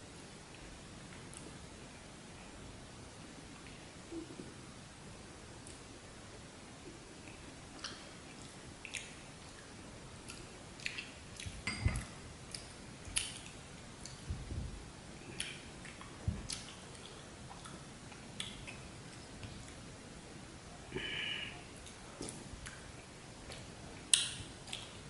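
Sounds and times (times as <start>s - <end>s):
chewing noises: 15.3s - 19.8s.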